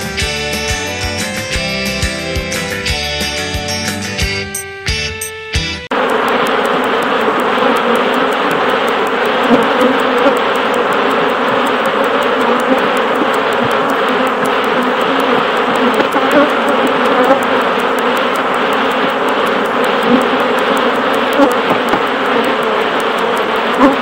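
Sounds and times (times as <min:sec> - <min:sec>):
honey bees buzzing: 0:05.9 - 0:24.0.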